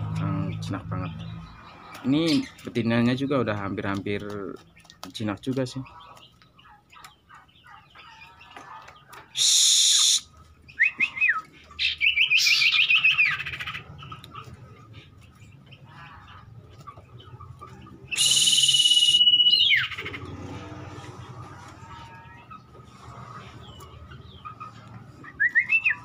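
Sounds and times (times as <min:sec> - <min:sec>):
quick bird chirping: 0:00.0 - 0:26.0
harsh rasping bird call: 0:09.3 - 0:13.8, 0:18.1 - 0:20.8
long high whistle: 0:18.2 - 0:19.5.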